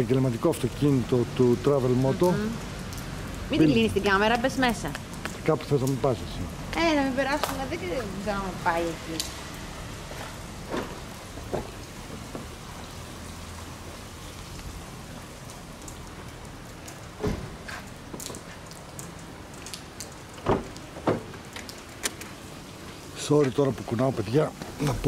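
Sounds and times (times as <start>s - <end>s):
steady rain falling: 0.0s - 25.0s
sharp knocks and thumps: 10.7s - 12.5s, 20.4s - 21.4s.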